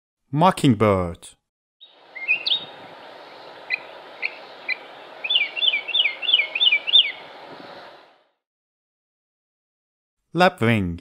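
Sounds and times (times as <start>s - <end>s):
mockingbird singing: 1.8s - 8.0s
recording hiss: 1.9s - 8.3s.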